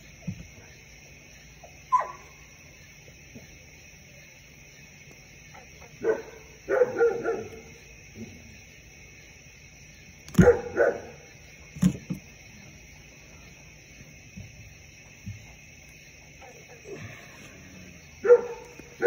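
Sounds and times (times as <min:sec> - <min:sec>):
dog barking: 0:01.9 - 0:02.4, 0:06.0 - 0:08.3, 0:10.4 - 0:11.3, 0:18.2 - 0:19.0.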